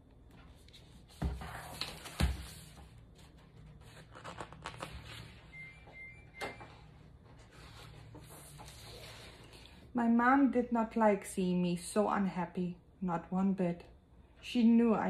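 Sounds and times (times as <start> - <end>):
pages rustling: 0.3 - 5.4.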